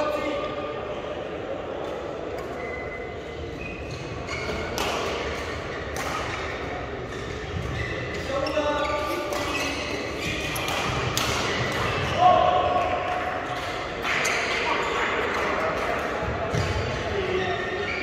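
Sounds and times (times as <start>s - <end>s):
shoes squeaking on court: 2.3s - 12.2s, 16.5s - 18.0s.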